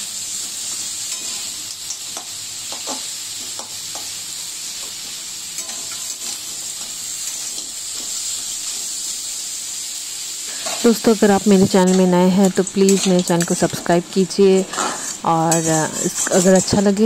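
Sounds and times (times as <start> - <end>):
food sizzling in oil: 0.0 - 17.0
metal spatula scraping a pan: 0.6 - 1.6, 5.6 - 6.5, 10.5 - 17.0.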